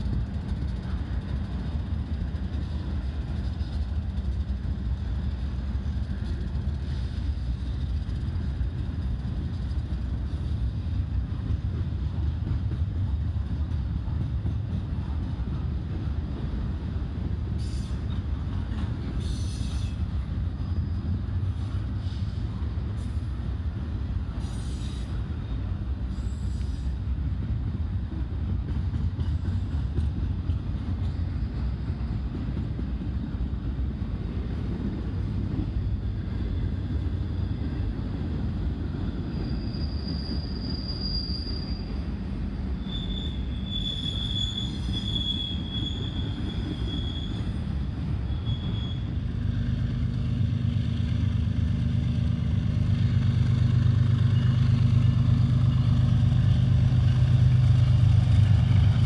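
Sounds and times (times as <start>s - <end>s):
diesel locomotive engine hum: 0.0s - 59.0s
train wheels squealing: 17.4s - 27.2s, 28.7s - 34.0s, 35.6s - 59.0s.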